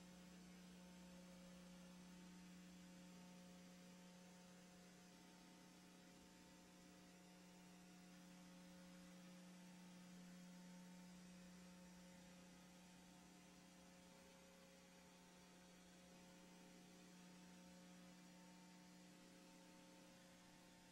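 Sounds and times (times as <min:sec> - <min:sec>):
faint steady hum: 0:00.0 - 0:20.9.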